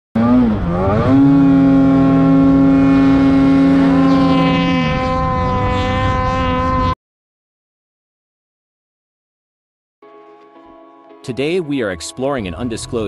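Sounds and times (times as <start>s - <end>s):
snowmobile engine revving: 0.2s - 7.0s.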